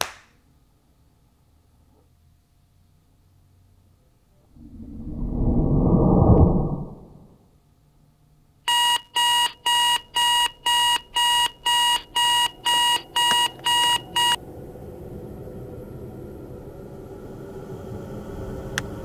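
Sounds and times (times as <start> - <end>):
low rumbling: 4.4 - 7.4
alarm clock beeping: 8.7 - 14.4.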